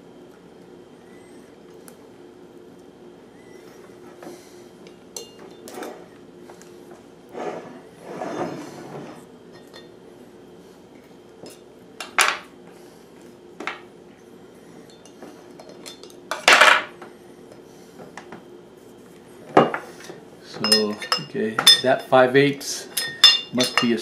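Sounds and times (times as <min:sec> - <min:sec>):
metal clinks and knocks: 0:20.6 - 0:22.1, 0:23.0 - 0:24.0.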